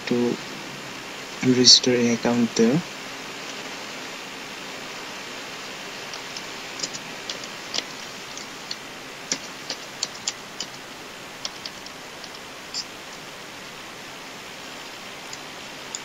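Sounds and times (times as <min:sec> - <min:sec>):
steady background hiss: 0:00.0 - 0:16.0
computer keyboard typing: 0:06.1 - 0:10.8, 0:11.4 - 0:13.2.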